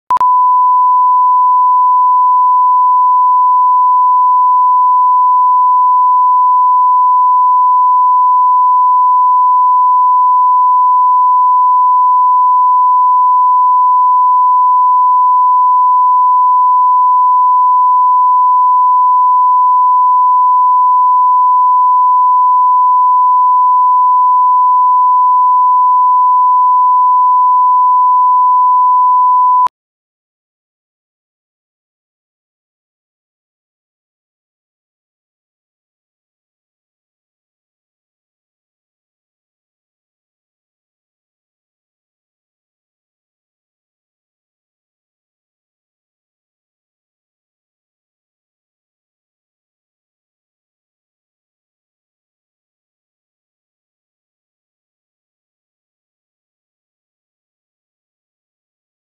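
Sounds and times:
steady sine line-up tone: 0:00.1 - 0:29.7.

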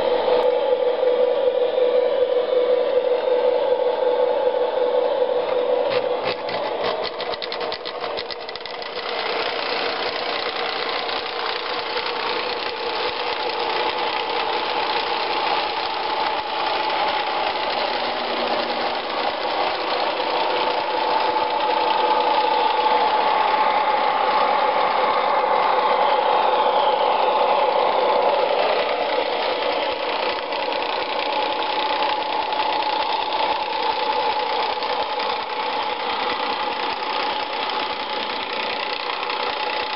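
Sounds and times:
locomotive engine sounds: 0:00.0 - 0:39.9
model train motor hum: 0:00.0 - 0:39.9
rapid clicks: 0:05.8 - 0:39.9.

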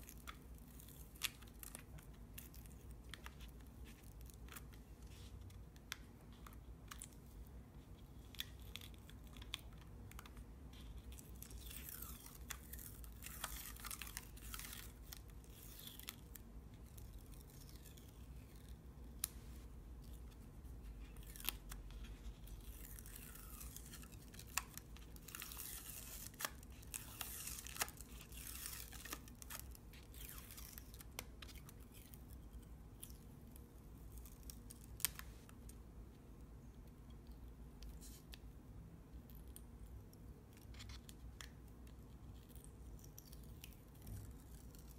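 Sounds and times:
rubbery film peeling off paper: 0:08.2 - 0:32.2.

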